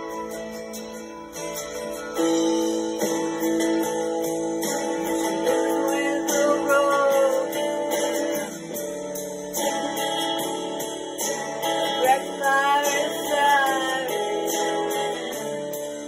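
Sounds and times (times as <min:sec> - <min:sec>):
acoustic guitar accompaniment: 0:00.0 - 0:16.0
woman singing a slow ballad: 0:05.4 - 0:07.9, 0:11.9 - 0:15.3.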